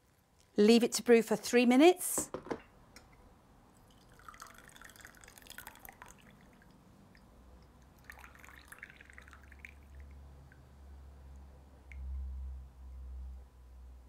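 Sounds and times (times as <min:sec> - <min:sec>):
tea trickling into cup: 0:03.7 - 0:10.6.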